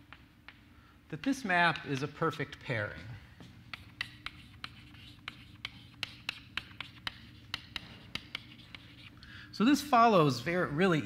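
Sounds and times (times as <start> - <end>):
low room hum: 0.0 - 11.0
chalk tapping on blackboard: 1.6 - 2.2, 3.4 - 9.2.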